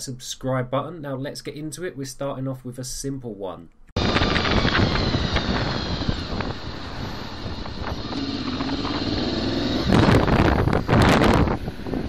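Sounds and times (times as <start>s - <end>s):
faint low motorcycle engine: 4.0s - 12.0s
wind rushing over microphone: 4.0s - 12.0s.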